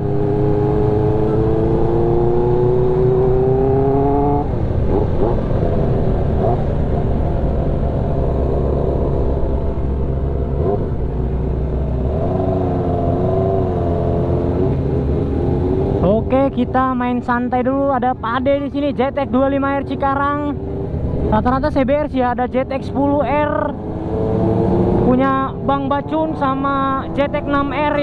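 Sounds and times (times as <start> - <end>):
motorcycle engine revving: 0.0 - 16.3, 23.6 - 28.0.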